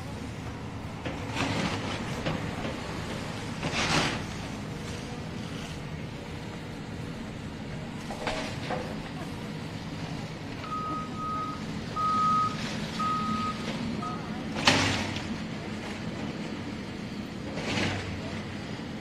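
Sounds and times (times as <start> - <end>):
engine running: 0.0 - 19.0
backup alarm beeping: 10.6 - 14.4.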